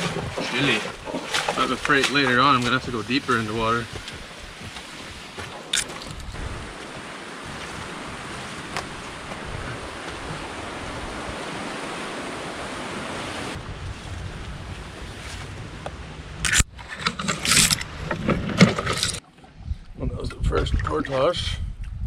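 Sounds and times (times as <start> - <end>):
loud irregular knocks and splashes: 0.0 - 13.2
rushing waterfall: 0.0 - 13.6.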